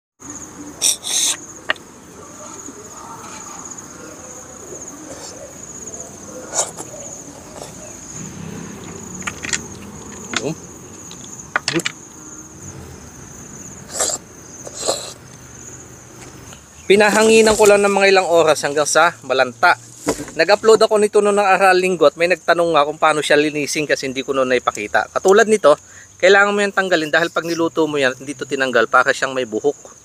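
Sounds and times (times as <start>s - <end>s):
high insect trill: 0.2s - 30.0s
slurping snails from shells: 0.8s - 1.8s, 6.4s - 11.9s, 13.9s - 15.3s.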